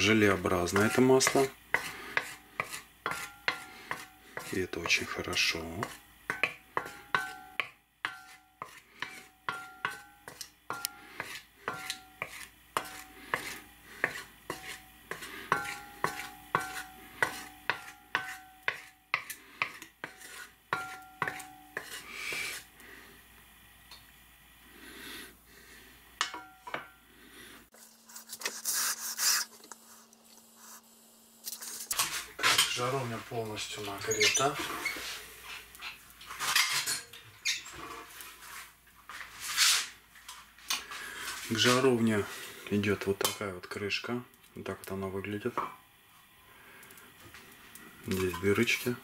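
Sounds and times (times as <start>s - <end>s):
wooden spatula scraping metal pot: 0.0s - 22.7s, 31.5s - 38.7s, 48.1s - 49.0s.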